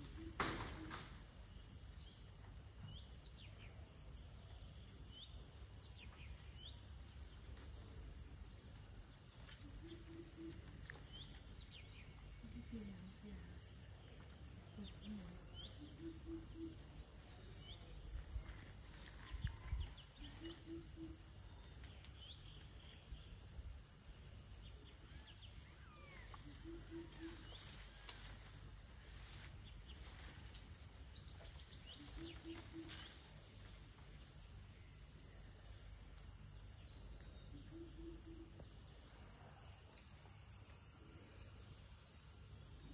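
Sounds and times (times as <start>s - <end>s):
insects droning: 0.0s - 42.9s
bird chirps: 31.2s - 33.2s.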